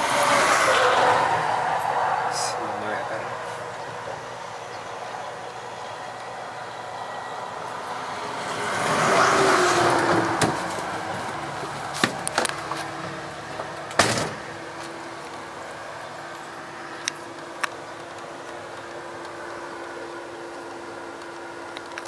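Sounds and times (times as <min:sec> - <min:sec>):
vehicle passing by: 0:00.0 - 0:17.3.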